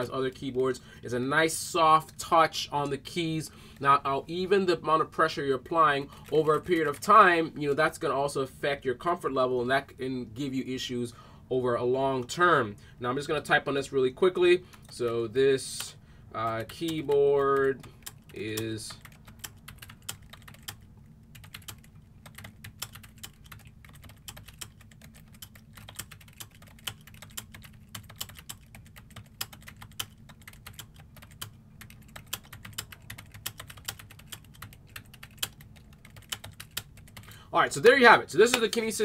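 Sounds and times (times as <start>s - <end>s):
faint low hum: 0.0s - 39.0s
keyboard typing: 16.5s - 37.3s.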